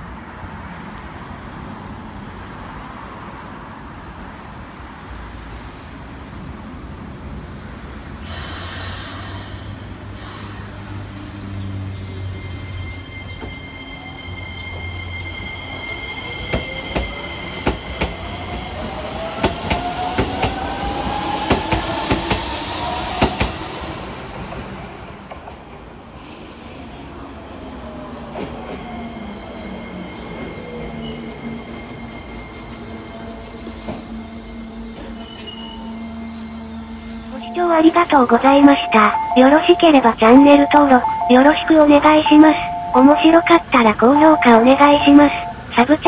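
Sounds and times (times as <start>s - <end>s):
air brake hiss: 8.2s - 11.0s.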